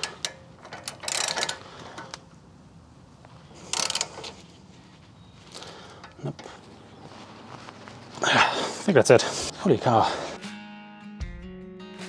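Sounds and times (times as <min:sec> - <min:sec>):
ratchet wrench clicking: 0:00.0 - 0:02.2, 0:03.7 - 0:04.3.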